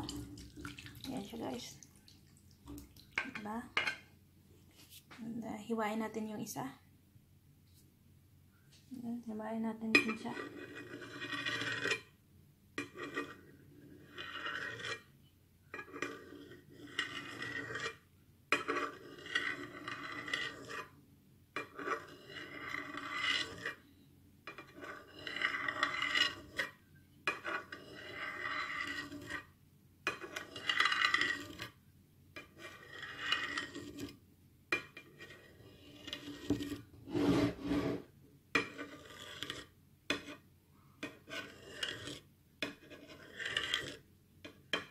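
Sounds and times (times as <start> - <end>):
knife scraping along a plate: 10.0 - 12.1, 12.8 - 15.1, 15.7 - 21.0, 21.6 - 23.9, 24.5 - 29.5, 30.1 - 31.8, 32.4 - 34.2, 34.8 - 44.9.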